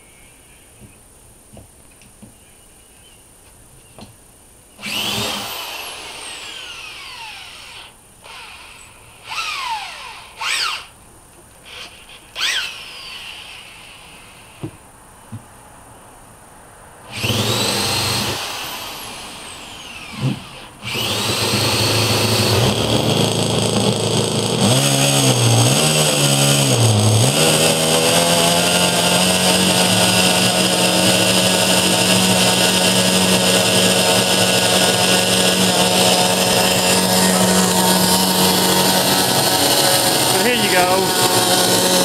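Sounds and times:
model engine ducted fan whine: 0:17.0 - 0:42.0.

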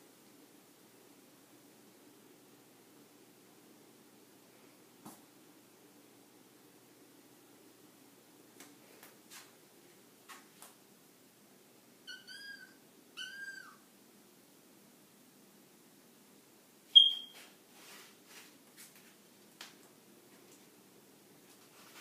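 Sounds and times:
kitten meowing: 0:12.1 - 0:13.8
sharp high squeak: 0:17.0 - 0:17.4.

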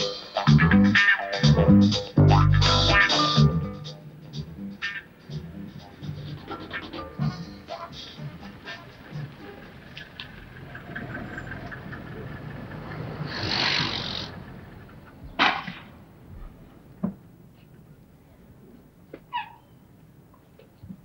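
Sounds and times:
tyres and brakes hissing: 0:05.9 - 0:16.3
car engine running: 0:07.6 - 0:15.2.

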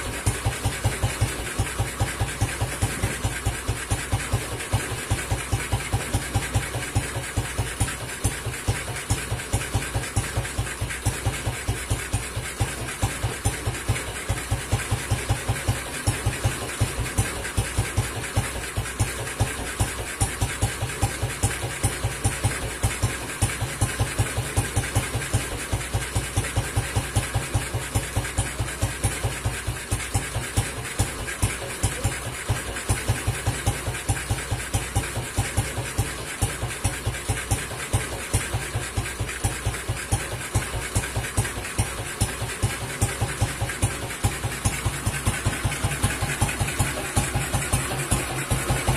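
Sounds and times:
motorcycle engine idling: 0:00.0 - 0:48.9.

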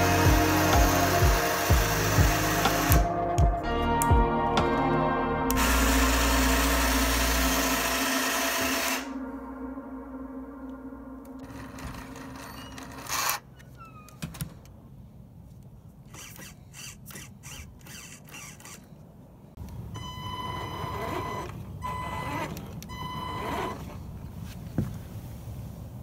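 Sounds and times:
electric motor and gears whining: 0:00.0 - 0:03.3, 0:05.5 - 0:09.2, 0:11.4 - 0:13.6, 0:16.1 - 0:19.0, 0:20.3 - 0:24.1
steering servo whirring: 0:16.1 - 0:19.0, 0:20.5 - 0:24.0.

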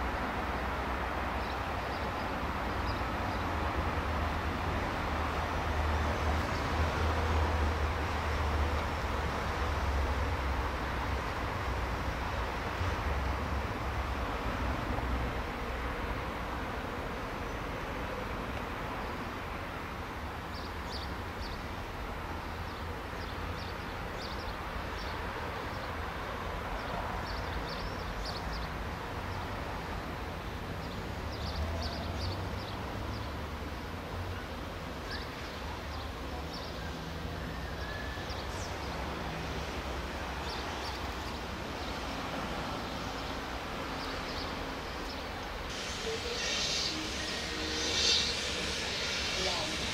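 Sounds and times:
steam locomotive rumbling: 0:36.9 - 0:49.9
steam hiss: 0:45.4 - 0:49.9.

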